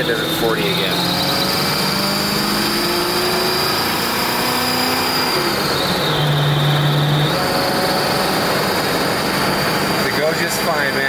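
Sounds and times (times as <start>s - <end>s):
car engine accelerating: 0.0s - 11.0s
road noise inside cabin: 0.0s - 11.0s.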